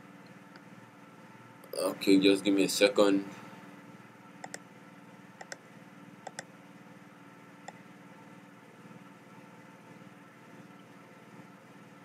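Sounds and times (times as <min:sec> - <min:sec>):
steady low hum: 0:00.0 - 0:12.0
computer mouse clicks: 0:04.4 - 0:04.6, 0:05.4 - 0:05.6, 0:06.2 - 0:06.5.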